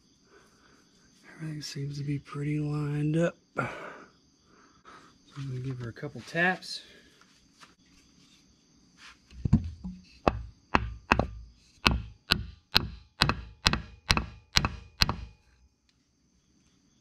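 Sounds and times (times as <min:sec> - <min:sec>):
sharp knocks on wooden board: 0:09.4 - 0:15.4.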